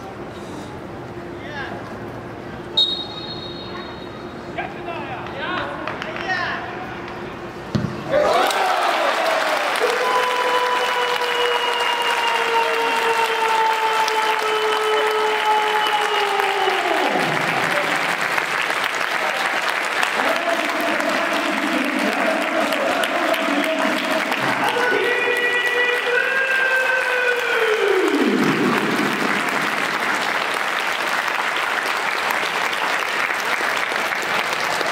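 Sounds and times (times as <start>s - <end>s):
crowd applauding: 8.2s - 34.9s.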